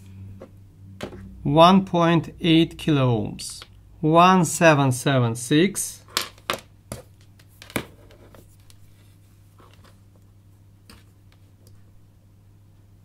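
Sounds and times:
low hum: 0.0s - 4.4s.

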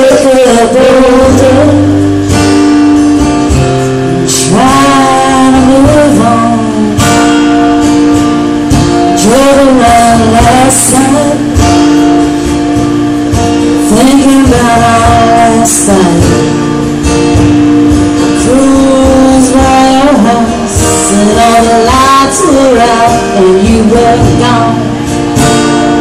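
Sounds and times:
person singing: 0.0s - 2.2s, 3.6s - 7.8s, 9.0s - 11.8s, 13.7s - 16.6s, 18.3s - 26.0s
acoustic guitar strumming: 0.0s - 26.0s.

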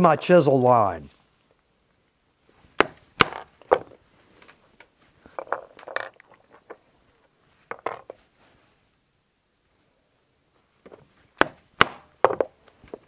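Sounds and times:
mallet strike on chisel: 11.4s - 12.1s.

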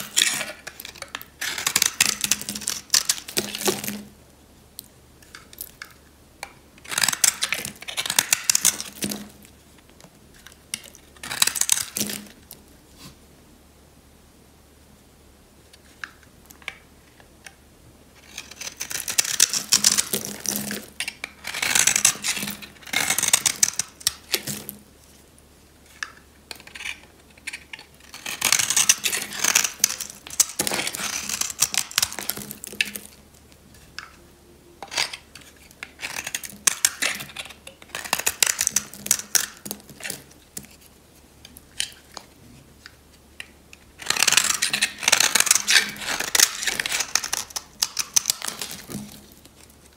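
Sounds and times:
knife scraping soap: 0.0s - 3.8s, 6.8s - 9.3s, 10.4s - 12.3s, 18.2s - 24.6s, 25.9s - 33.0s, 34.8s - 40.8s, 44.0s - 49.2s.

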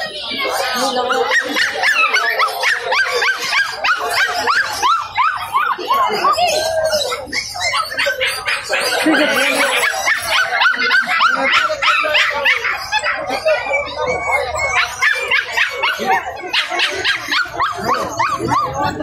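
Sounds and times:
puppies yapping and yelping: 0.0s - 19.0s.

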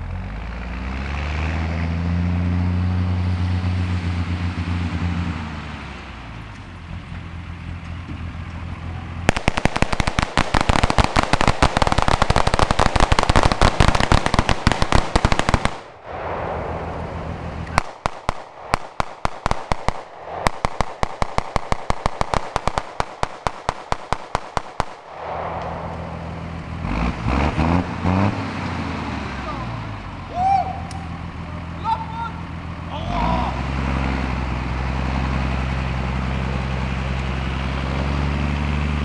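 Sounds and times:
truck engine idling: 0.0s - 39.0s
rapid gunfire: 9.3s - 16.0s, 17.7s - 25.8s.

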